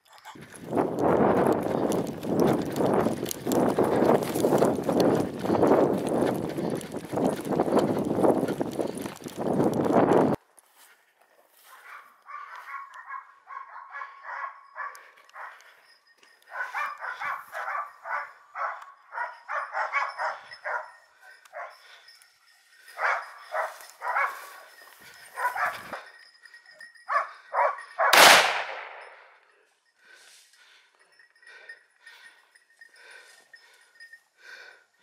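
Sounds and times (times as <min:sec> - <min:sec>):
dogs barking: 0:11.7 - 0:15.8, 0:16.4 - 0:22.1, 0:22.8 - 0:26.1, 0:27.1 - 0:28.2
gunshot: 0:28.1 - 0:29.2.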